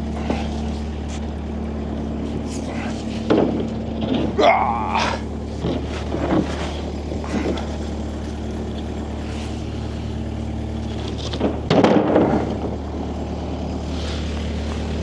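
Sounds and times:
engine idling: 0.0 - 15.0
clattering noise: 2.5 - 4.4, 5.6 - 7.7, 10.9 - 12.8.

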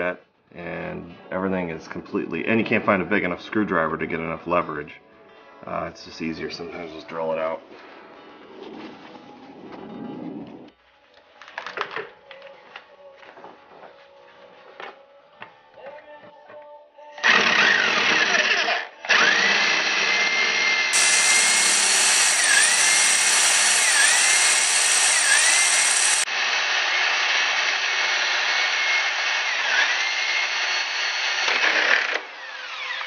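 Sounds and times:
electric drill whining: 17.2 - 33.0.

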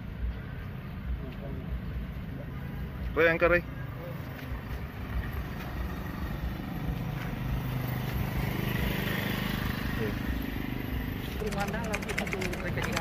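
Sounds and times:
motor scooter passing: 4.8 - 13.0.

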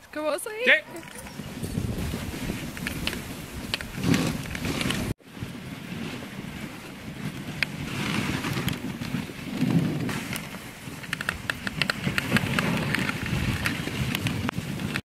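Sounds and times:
sled runners scraping on snow: 0.6 - 15.0
metallic chain clinks: 0.9 - 2.1.

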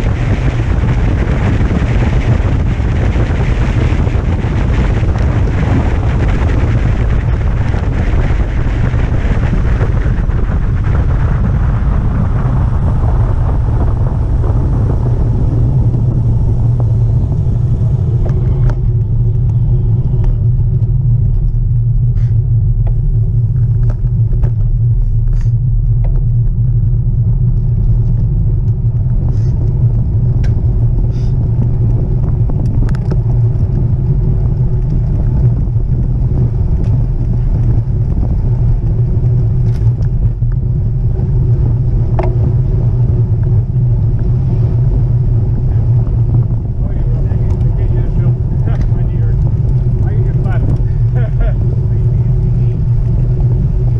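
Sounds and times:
high rushing noise: 0.0 - 21.2
wind buffeting microphone: 0.0 - 53.9.

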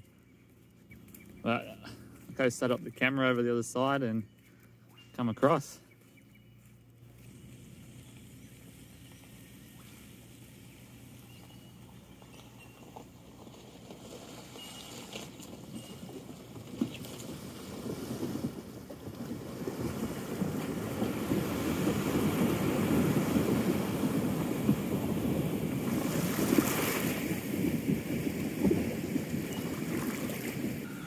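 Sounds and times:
car engine: 6.9 - 17.8
water splashing: 19.6 - 27.6, 28.2 - 31.0.

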